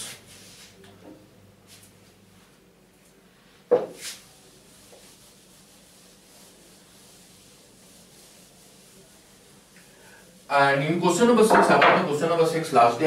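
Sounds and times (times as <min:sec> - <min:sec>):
duster rubbing a whiteboard: 0:03.9 - 0:13.0.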